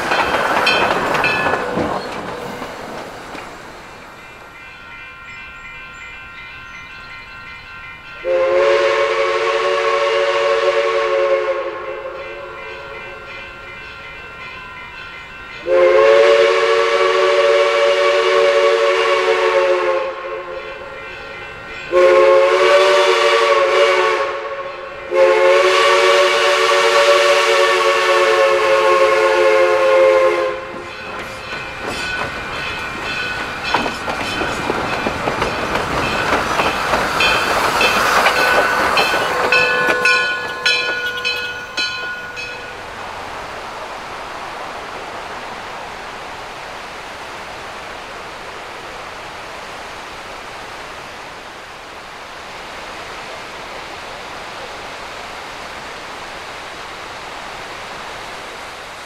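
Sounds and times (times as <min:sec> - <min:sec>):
steam locomotive chime whistle: 0:00.0 - 0:02.6, 0:04.2 - 0:42.9
clattering steam and running gear: 0:00.0 - 0:04.4, 0:30.7 - 0:42.7
steady steam hiss: 0:00.0 - 0:59.0.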